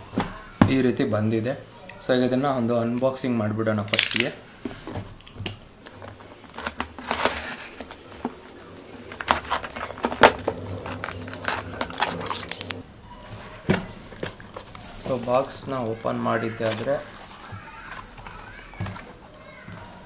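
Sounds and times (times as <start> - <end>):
low steady hum: 2.9 - 17.7.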